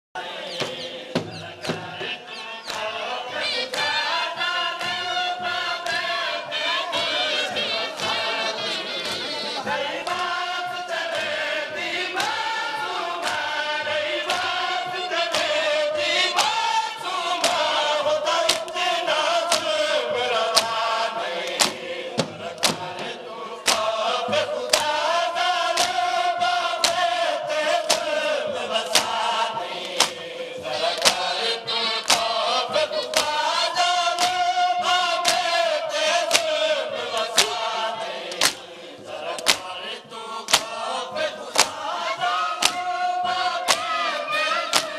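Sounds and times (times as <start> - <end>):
men chanting in unison: 0.2 - 44.9
chest-beating slaps: 0.5 - 3.0, 16.3 - 16.7, 18.4 - 18.8, 19.5 - 19.8, 20.5 - 25.0, 25.8 - 26.1, 26.8 - 27.1, 27.8 - 33.4, 34.1 - 35.6, 36.3 - 40.9, 41.5 - 44.9.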